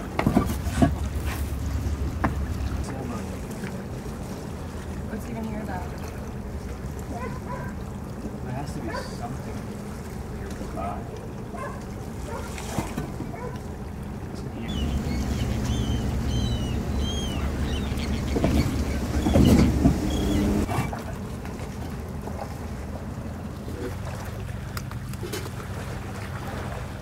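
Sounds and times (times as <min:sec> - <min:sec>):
low engine hum: 0:00.0 - 0:27.0
birds chirping: 0:13.2 - 0:20.7.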